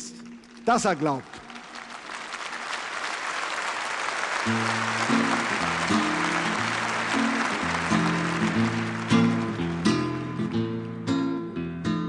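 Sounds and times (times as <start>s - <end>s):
audience applause: 0.3s - 10.6s
acoustic guitar chords: 4.4s - 12.0s.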